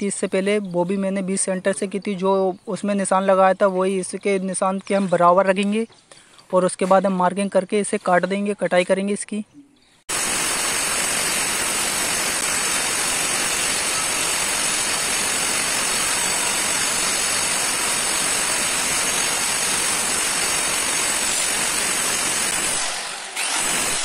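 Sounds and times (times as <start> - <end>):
electric cutter sawing marble: 10.1 - 24.0.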